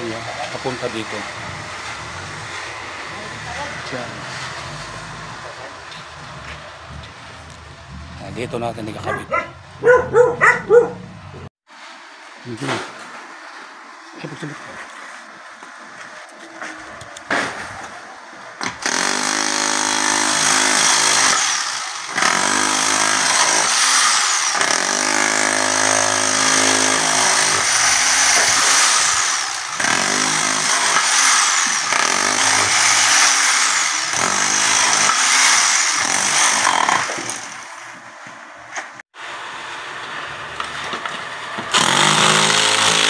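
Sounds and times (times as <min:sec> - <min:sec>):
demolition hammer chiseling concrete: 0:00.0 - 0:08.9, 0:18.6 - 0:37.7, 0:41.7 - 0:43.0.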